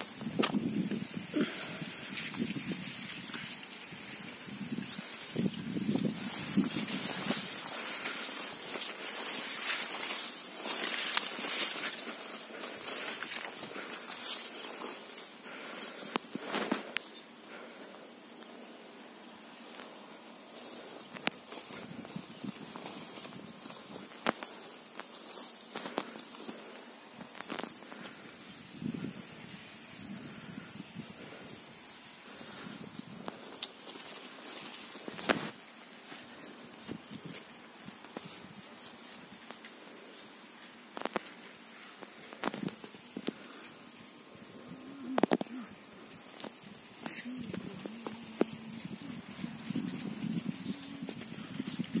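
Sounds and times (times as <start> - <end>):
footsteps: 0.0 - 17.0, 19.6 - 28.2, 32.3 - 39.8, 46.3 - 52.0
insects chirring: 0.0 - 52.0.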